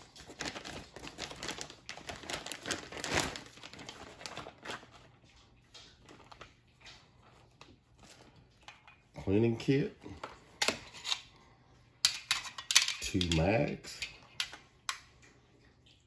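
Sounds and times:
plastic bag crinkling: 0:00.0 - 0:09.0.

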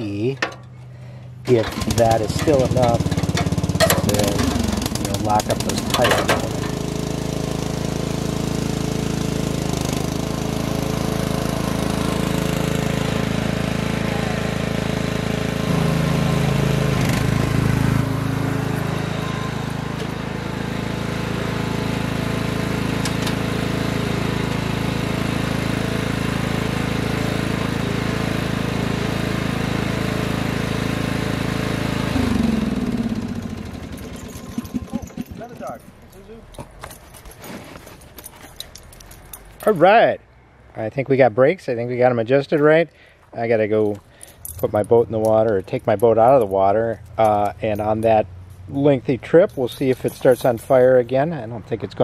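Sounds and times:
lawn tractor engine running: 0:00.0 - 0:40.0, 0:43.7 - 0:52.0
engine winding down: 0:00.7 - 0:37.4.

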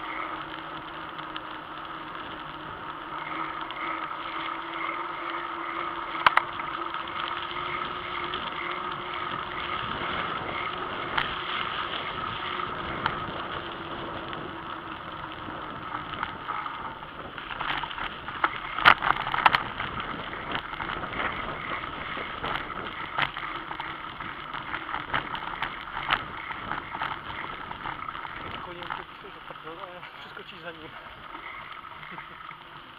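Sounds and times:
bicycle tyres rolling: 0:00.0 - 0:32.9
bike rattling on rough track: 0:00.0 - 0:32.9
wind noise: 0:07.5 - 0:32.5.

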